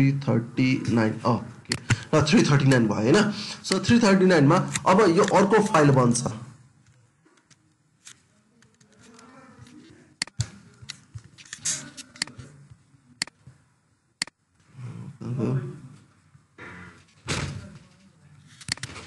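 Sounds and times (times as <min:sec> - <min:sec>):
mouse and keyboard clicks: 0:10.2 - 0:12.5.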